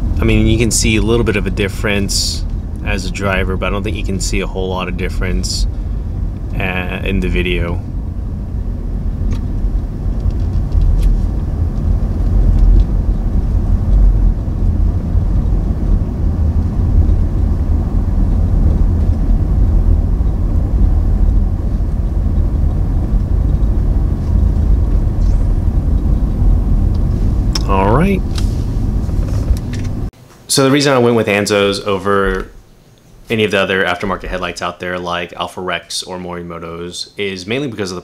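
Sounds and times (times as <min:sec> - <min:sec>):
engine and tyre rumble: 0:00.0 - 0:30.1.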